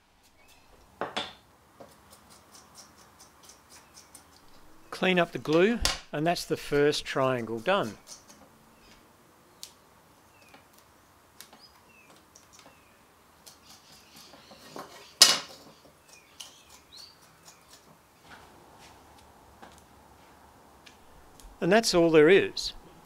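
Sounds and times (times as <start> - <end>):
bird chirps: 16.0 - 17.8.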